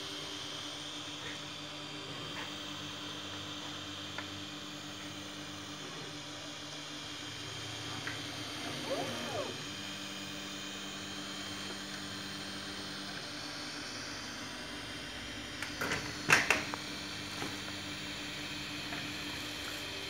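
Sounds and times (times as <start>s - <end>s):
stepper motor whine: 3.0s - 15.0s
cooling fans humming: 3.8s - 13.0s.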